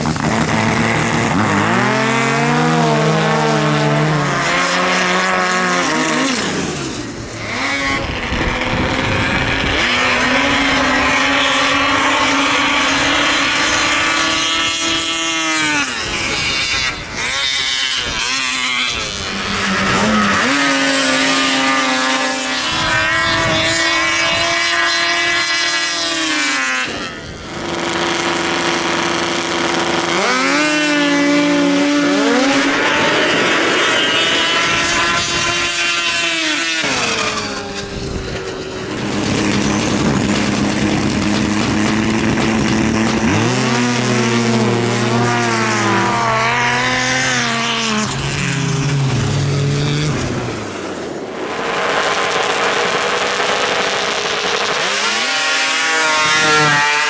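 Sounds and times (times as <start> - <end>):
snowmobile engines at full throttle: 0.0 - 57.0.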